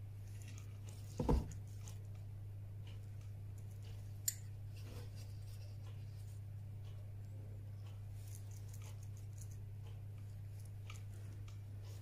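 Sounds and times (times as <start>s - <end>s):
steady low hum: 0.0s - 12.0s
dull knock: 1.2s - 1.5s
pliers bending wire: 4.2s - 4.5s.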